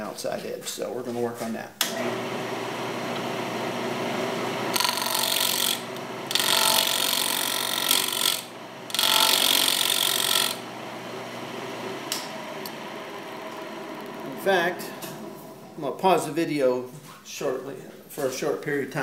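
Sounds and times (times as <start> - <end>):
wood lathe humming: 1.9 - 16.0
turning tool scraping wood: 4.7 - 10.7.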